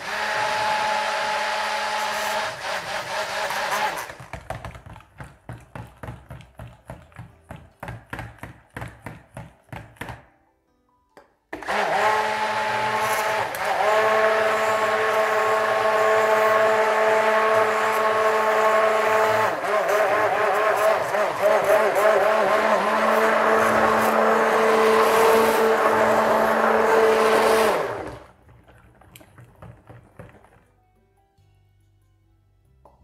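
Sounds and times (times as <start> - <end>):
stick blender running: 0.0 - 4.4, 11.6 - 28.4.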